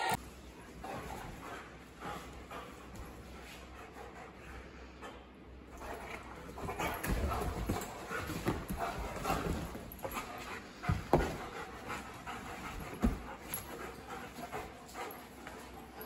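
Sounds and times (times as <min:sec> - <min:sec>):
dogs panting: 0:00.6 - 0:16.0
dogs scuffling: 0:05.7 - 0:16.0.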